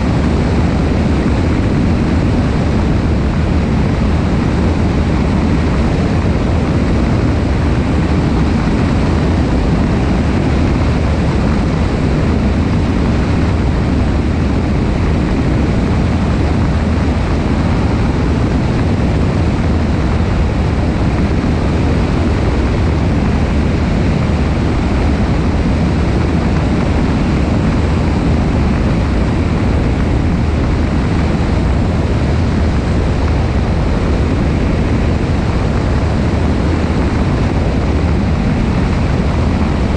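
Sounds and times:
aircraft engine and propeller drone: 0:00.0 - 0:39.9
wind rushing over microphone: 0:00.0 - 0:39.9.

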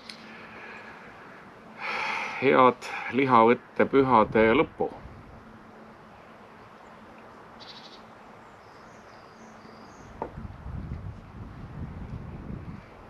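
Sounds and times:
small birds trilling and chirping: 0:00.0 - 0:10.4.

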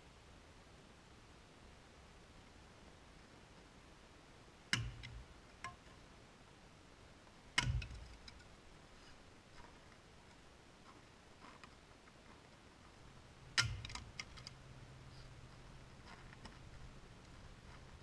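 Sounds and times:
axe chopping firewood: 0:04.7 - 0:05.9, 0:07.6 - 0:08.4, 0:13.6 - 0:14.2.

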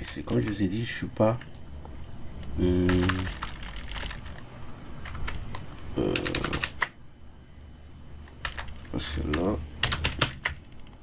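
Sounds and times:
voice-like hum: 0:02.5 - 0:03.4, 0:05.9 - 0:06.8
keyboard keystrokes: 0:08.3 - 0:11.0.

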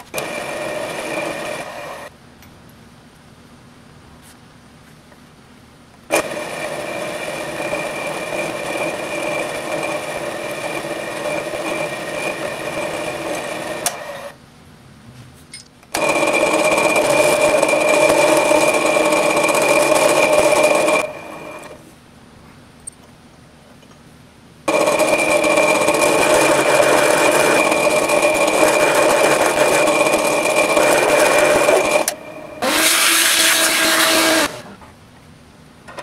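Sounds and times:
drill press drilling metal: 0:15.9 - 0:21.8, 0:24.7 - 0:34.6.

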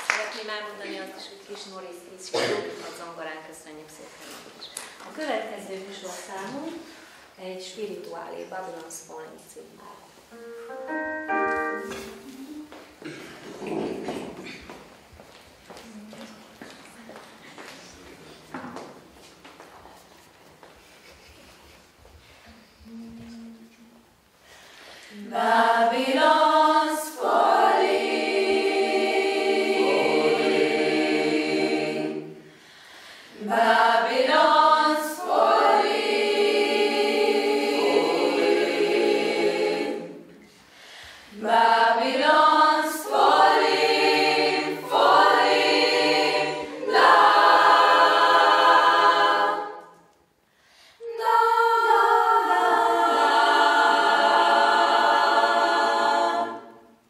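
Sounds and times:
children's choir singing: 0:00.8 - 0:02.8, 0:10.1 - 0:14.7, 0:25.1 - 0:32.6, 0:33.3 - 0:40.6, 0:41.2 - 0:50.3, 0:51.0 - 0:57.0.

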